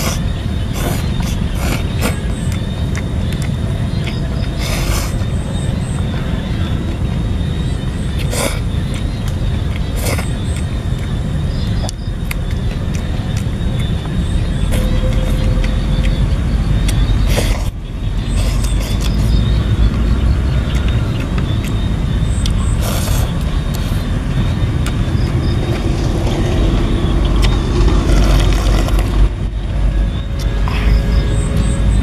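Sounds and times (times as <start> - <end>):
loud low rumble: 0.0 - 32.0
man slurping noodles: 22.8 - 24.0.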